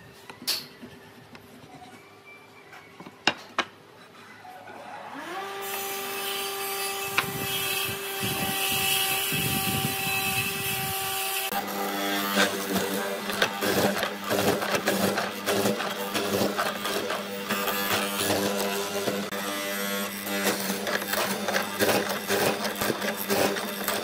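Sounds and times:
power tool motor whining: 0:05.1 - 0:24.0
chisel boring into wood: 0:07.0 - 0:24.0.

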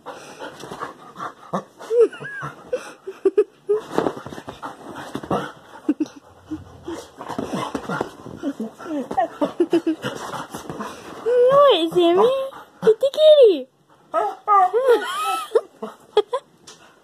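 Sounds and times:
dog panting: 0:00.0 - 0:03.0, 0:04.2 - 0:13.2
dog scrambling: 0:06.4 - 0:12.3
dog whining: 0:14.2 - 0:15.0.

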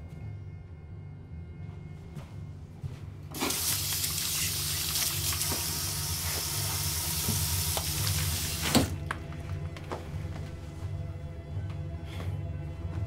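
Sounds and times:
tap water running into metal bowl: 0:03.4 - 0:08.9.

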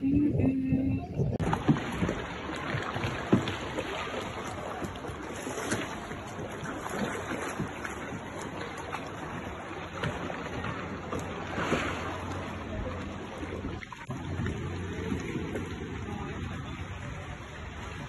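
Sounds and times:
sea water lapping and splashing: 0:00.0 - 0:18.0
paddle knocks: 0:01.4 - 0:12.4.

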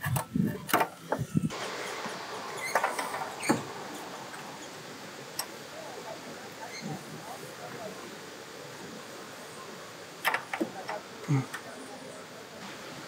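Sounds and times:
light scraping of metal parts: 0:00.0 - 0:05.6
steady hiss: 0:00.0 - 0:13.0.

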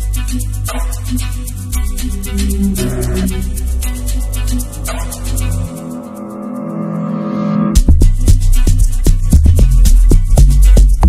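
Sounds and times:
fast shaker pattern: 0:00.0 - 0:06.7, 0:07.8 - 0:11.0
deep bass notes: 0:01.6 - 0:06.0.

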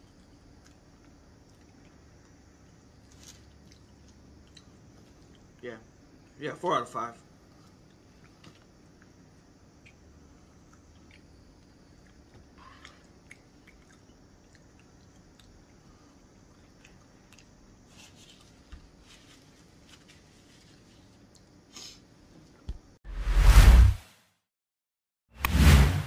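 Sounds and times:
person chewing: 0:00.0 - 0:05.6, 0:07.5 - 0:17.9.

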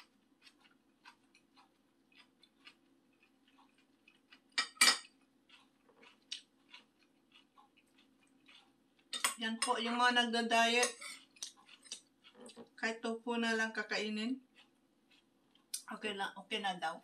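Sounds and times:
eating and utensil clicks: 0:00.4 - 0:09.8, 0:10.7 - 0:12.8
metal spoon clattering on dish: 0:04.6 - 0:05.1, 0:09.2 - 0:09.8, 0:10.8 - 0:11.2.

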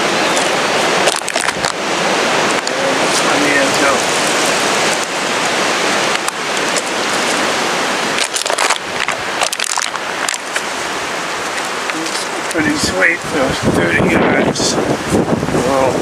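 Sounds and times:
strong wind buffeting microphone: 0:00.0 - 0:16.0
short crackles: 0:00.3 - 0:01.8, 0:02.4 - 0:12.6.

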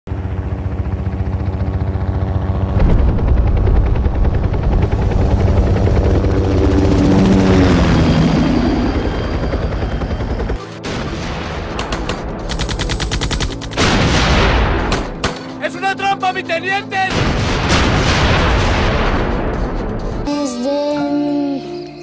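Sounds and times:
helicopter rotor beating: 0:00.1 - 0:20.3
rapid automatic gunfire: 0:11.7 - 0:15.4.

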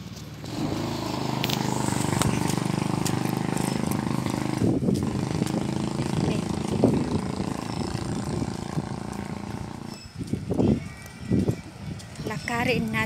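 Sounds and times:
small engine running: 0:00.1 - 0:10.3.

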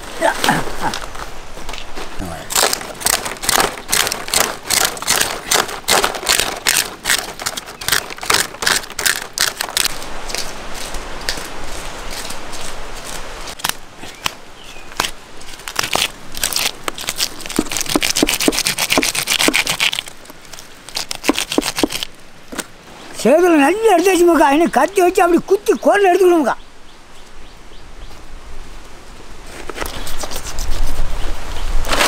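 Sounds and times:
knife scraping fish scales: 0:15.7 - 0:20.1, 0:20.9 - 0:22.1.

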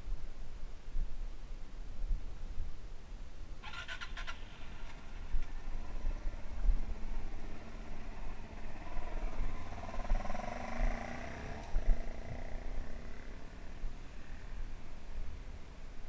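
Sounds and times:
trail bike engine running: 0:03.6 - 0:14.7.

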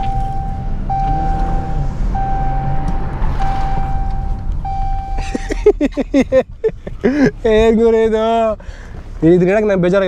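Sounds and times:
long electronic beeps: 0:00.0 - 0:02.8, 0:03.4 - 0:05.3
car engine rumbling: 0:00.0 - 0:10.0.

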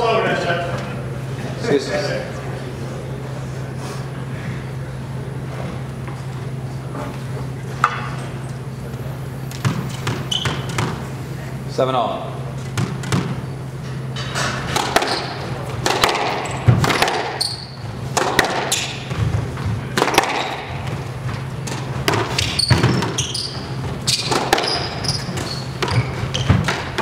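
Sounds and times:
low hum: 0:02.2 - 0:14.8
squash ball hitting rackets and walls: 0:09.4 - 0:11.1, 0:12.6 - 0:13.5, 0:14.1 - 0:27.0
shoes squeaking on hardwood: 0:09.5 - 0:11.0, 0:22.3 - 0:26.7.

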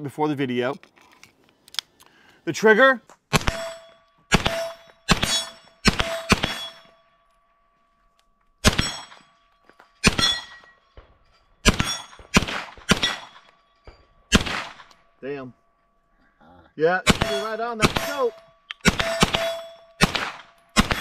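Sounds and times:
carbine gunshots: 0:03.3 - 0:06.9, 0:08.6 - 0:09.2, 0:10.0 - 0:13.6, 0:14.3 - 0:15.1, 0:17.0 - 0:21.0
metallic ring: 0:03.4 - 0:08.1, 0:08.7 - 0:12.3, 0:17.2 - 0:21.0.

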